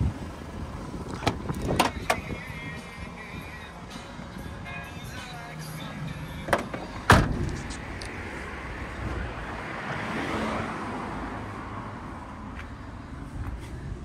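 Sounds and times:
road traffic: 0:00.0 - 0:14.0
van door banging: 0:06.4 - 0:07.5.

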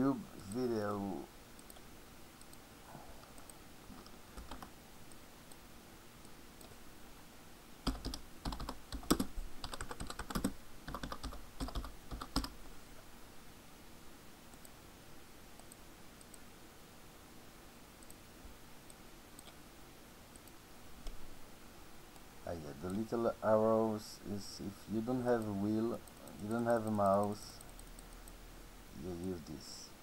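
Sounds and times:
computer keyboard typing: 0:04.0 - 0:04.7, 0:07.8 - 0:12.6, 0:19.4 - 0:19.6.

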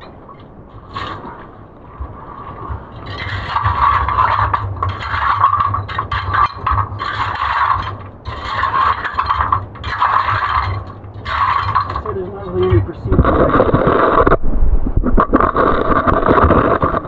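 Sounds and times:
steady low hum: 0:00.0 - 0:17.0
body scraping over wet cobbles: 0:00.9 - 0:14.4.

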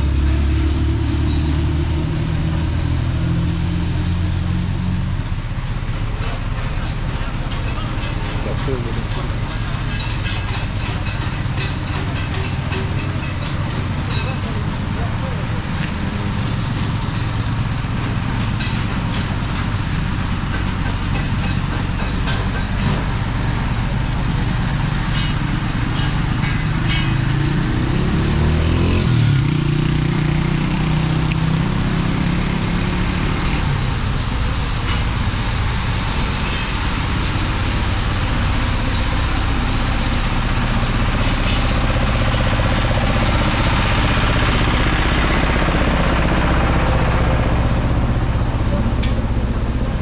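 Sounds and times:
vehicle passing by: 0:00.0 - 0:05.2, 0:25.7 - 0:34.8
road traffic hum: 0:00.0 - 0:50.0.

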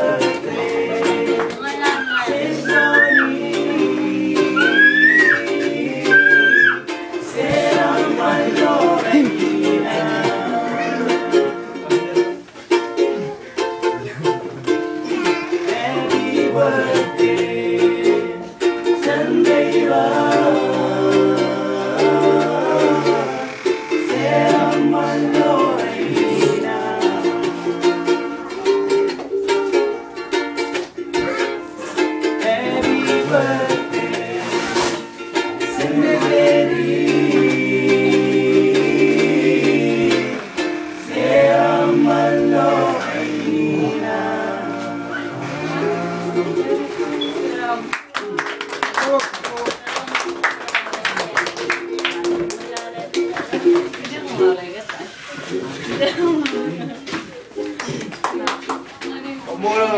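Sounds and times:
male voices singing in chorus: 0:00.0 - 0:01.6, 0:02.2 - 0:11.6, 0:15.5 - 0:28.3, 0:32.4 - 0:35.0, 0:35.6 - 0:47.0
strummed stringed instrument: 0:00.0 - 0:48.0.

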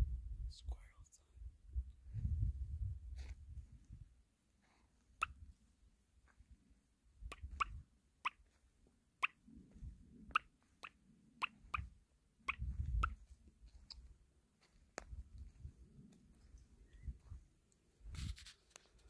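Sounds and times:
footsteps on dirt: 0:12.6 - 0:15.8.

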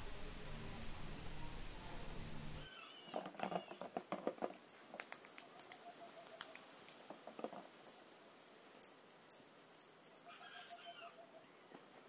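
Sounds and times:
faint thin squeak: 0:02.6 - 0:03.9.

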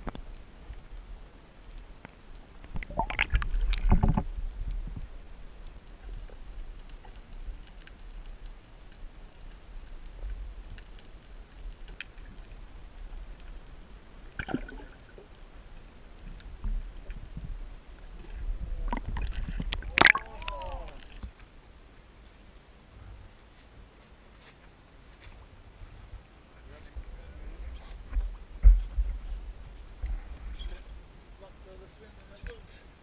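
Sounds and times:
underwater low rumble: 0:00.0 - 0:21.4, 0:25.7 - 0:31.8
bubbling water rush: 0:02.6 - 0:04.4, 0:14.2 - 0:15.6, 0:16.4 - 0:21.2.

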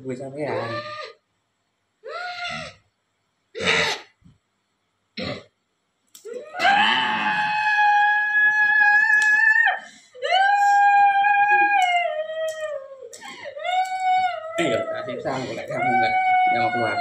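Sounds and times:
woman screaming: 0:06.3 - 0:17.0.

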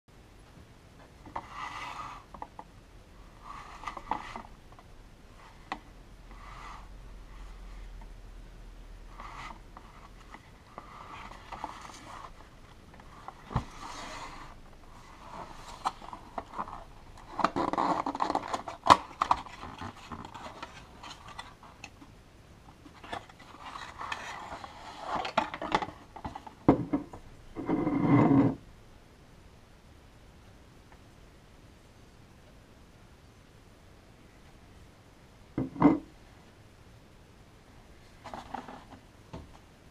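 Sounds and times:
cardboard rubbing and scraping: 0:13.1 - 0:21.6.

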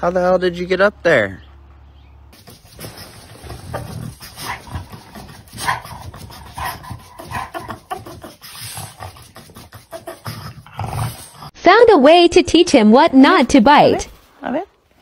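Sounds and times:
dog grumbling and whining: 0:03.4 - 0:11.5.

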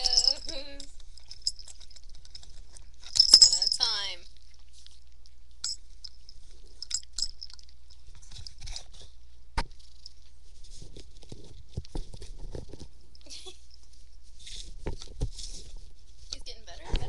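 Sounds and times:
pet gnawing on wood: 0:00.0 - 0:13.0.

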